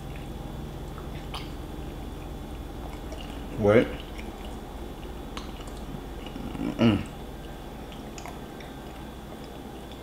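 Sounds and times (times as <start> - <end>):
person chewing food: 0.0 - 10.0
wet mouth clicks: 0.9 - 1.6, 5.3 - 10.0
low vocal sound: 5.4 - 8.3.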